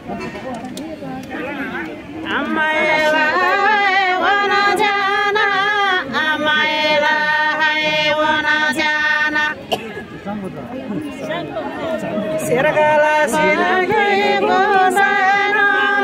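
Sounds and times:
women singing unaccompanied: 2.2s - 9.8s, 11.3s - 16.0s.

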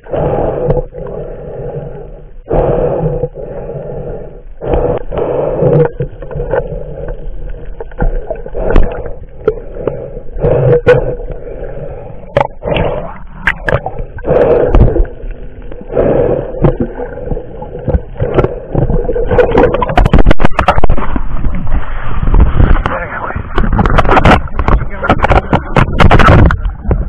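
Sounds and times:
breathing through snorkel: 0.0s - 19.9s
underwater splashing and bubbles: 0.0s - 27.0s.

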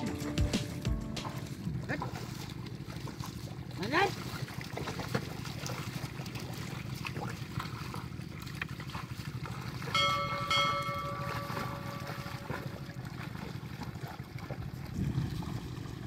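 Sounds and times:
splashes in wet mud: 0.6s - 10.1s, 11.2s - 16.0s
bell ringing: 10.0s - 12.8s
low rumble: 14.5s - 16.0s.

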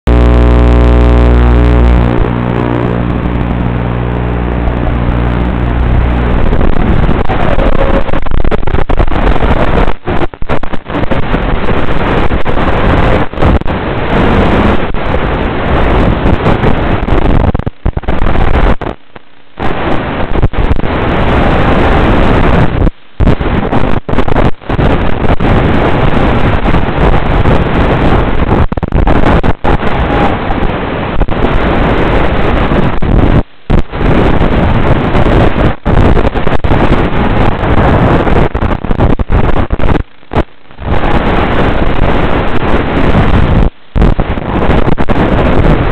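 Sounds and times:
wind rushing over microphone: 0.0s - 45.9s
motor and propeller tone: 0.1s - 10.4s.

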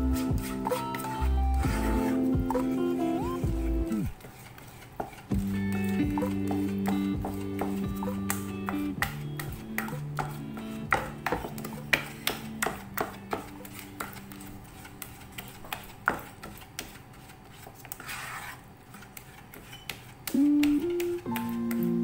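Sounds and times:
background music: 0.0s - 4.1s, 5.3s - 14.6s, 20.3s - 22.0s
spatula scraping a saucepan: 0.0s - 20.3s.

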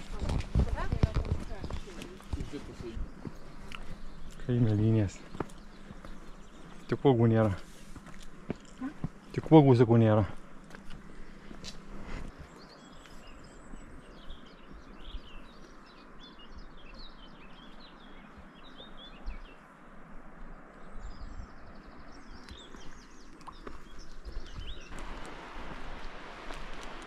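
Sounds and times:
songbirds chirping and singing: 0.0s - 7.8s, 12.3s - 25.0s
steady outdoor hiss: 0.0s - 27.0s.

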